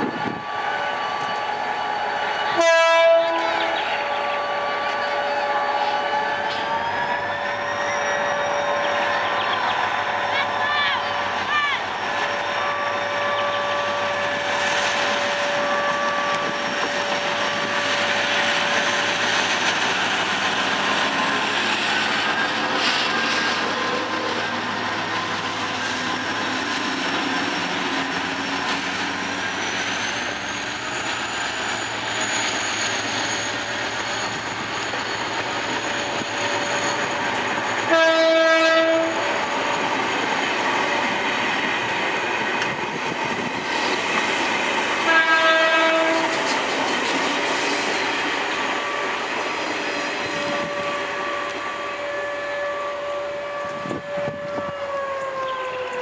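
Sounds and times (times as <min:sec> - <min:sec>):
train wheels rumbling on rail: 0:00.0 - 0:56.0
train horn: 0:00.1 - 0:19.0, 0:37.7 - 0:39.5, 0:45.0 - 0:46.6, 0:50.1 - 0:56.0.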